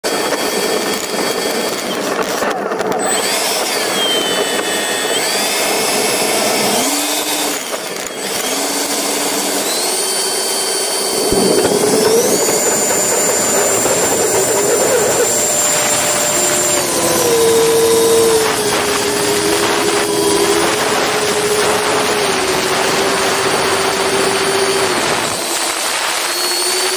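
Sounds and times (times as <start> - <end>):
model jet fans whining: 0.0 - 26.9
rush of air: 10.9 - 24.1.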